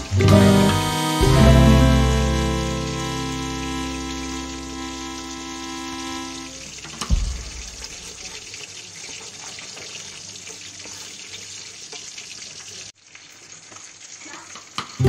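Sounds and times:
spice paste sizzling in oil: 0.0 - 6.8, 7.5 - 15.0.

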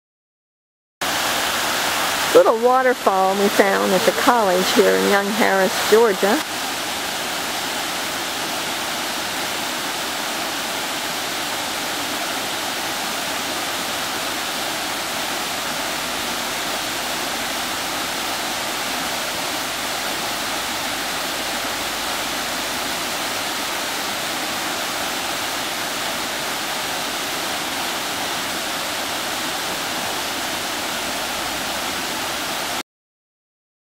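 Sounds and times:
water rushing over rocks: 1.0 - 32.8.

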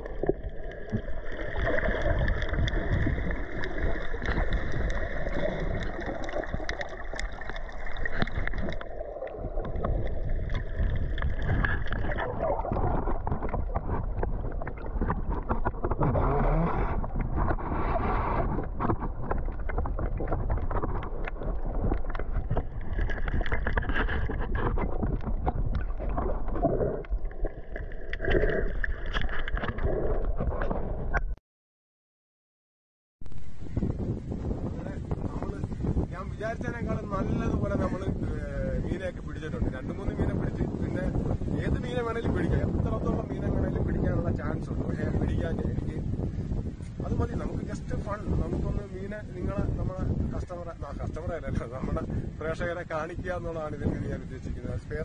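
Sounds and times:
faint clicks and crackles: 0.0 - 31.3
muffled underwater rush: 0.0 - 31.3, 33.3 - 55.0.

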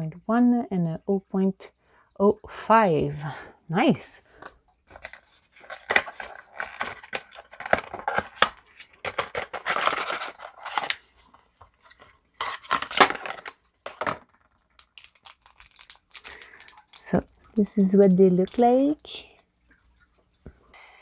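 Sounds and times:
packaging tearing and crinkling: 4.9 - 17.5
plastic pens clicking: 14.8 - 17.6.

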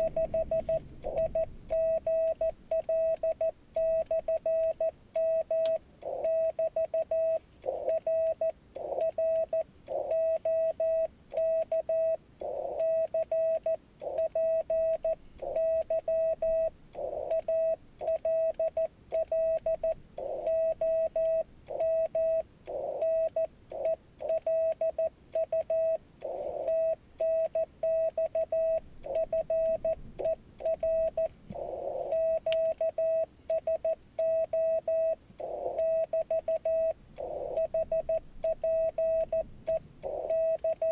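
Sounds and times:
morse code beeps: 0.0 - 40.9
radio hiss: 31.5 - 32.3.

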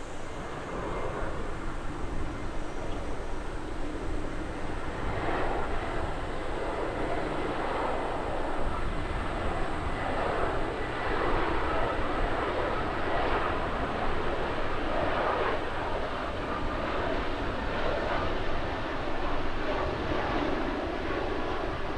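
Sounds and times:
jet engines on approach: 0.0 - 21.9.

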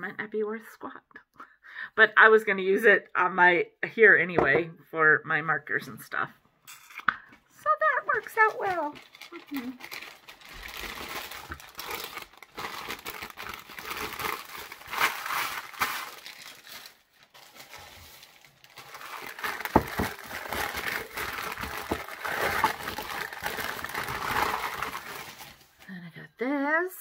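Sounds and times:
newspaper crumpling and rustling: 8.1 - 25.8.

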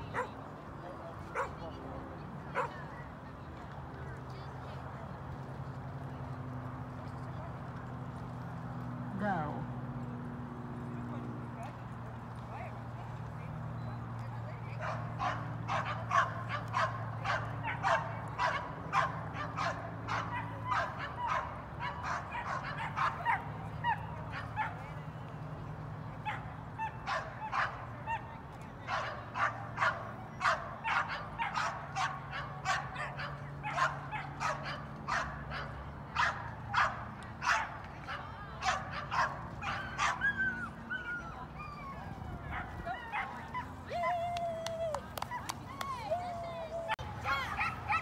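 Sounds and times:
dog barking: 0.1 - 0.3.

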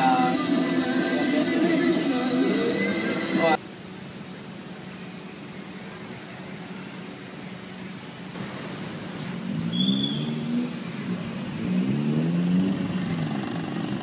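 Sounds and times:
car engine accelerating: 9.3 - 14.0
high whistle: 9.7 - 10.3.

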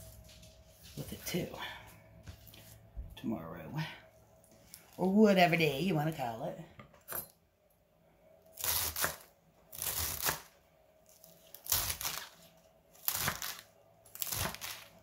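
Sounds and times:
knife chopping lettuce on board: 13.0 - 13.6, 14.2 - 14.9.

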